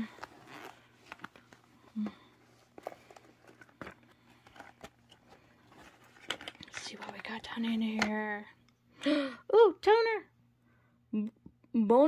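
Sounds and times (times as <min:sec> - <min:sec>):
packaging rustling: 0:00.0 - 0:08.0.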